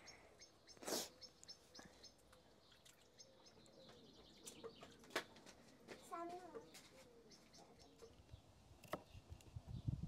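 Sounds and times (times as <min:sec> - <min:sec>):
faint bird chirps: 0:00.0 - 0:05.1
faint water drips: 0:00.7 - 0:05.2.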